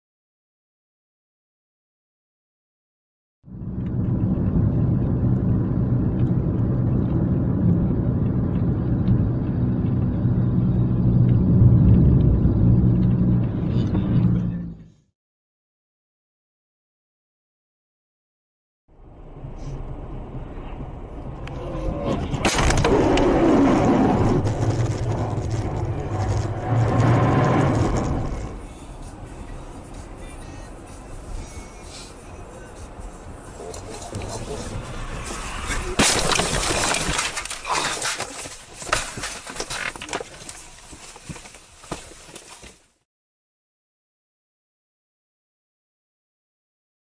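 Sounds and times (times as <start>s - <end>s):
low hum: 3.5s - 15.0s, 18.9s - 37.6s
vehicle engine and tyres droning: 3.5s - 15.1s, 18.9s - 43.0s
crash noise: 22.2s - 28.7s, 34.2s - 40.2s.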